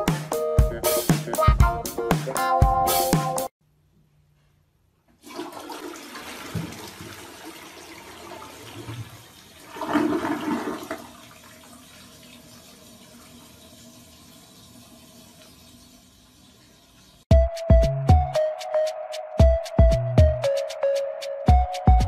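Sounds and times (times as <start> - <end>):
toilet flushing: 5.2 - 17.3.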